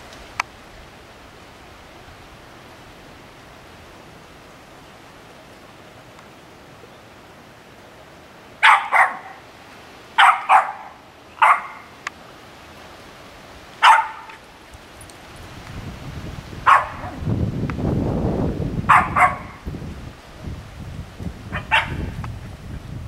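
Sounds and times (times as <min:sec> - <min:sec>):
rain hissing: 0:00.0 - 0:23.0
dog barking: 0:08.6 - 0:09.4, 0:10.2 - 0:11.9, 0:13.8 - 0:14.4, 0:16.6 - 0:17.2, 0:18.9 - 0:19.6, 0:21.5 - 0:22.1.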